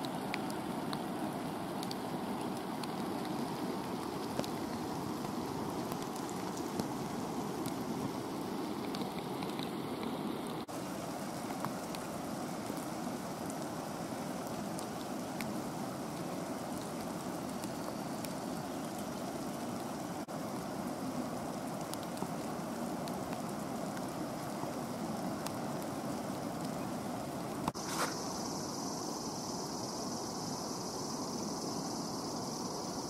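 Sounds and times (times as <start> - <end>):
rushing falling water: 0.0 - 33.0
faint ticks: 1.8 - 6.9, 21.8 - 24.1.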